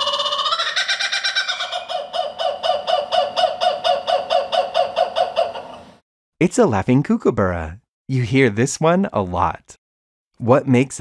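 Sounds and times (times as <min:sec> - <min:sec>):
kookaburra calling: 0:00.0 - 0:06.0.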